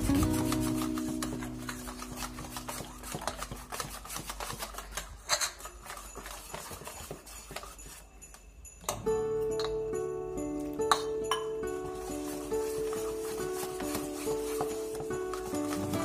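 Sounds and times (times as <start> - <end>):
background music: 0.0 - 4.3, 8.8 - 16.0
wire whisk beating in bowl: 0.0 - 8.1.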